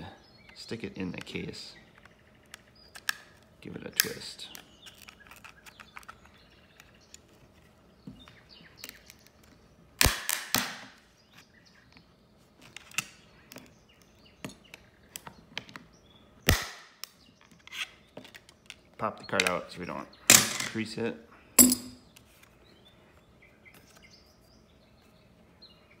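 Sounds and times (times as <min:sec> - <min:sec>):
plastic creaks and ticks: 0:00.5 - 0:09.6
plastic case cracking: 0:02.4 - 0:07.2.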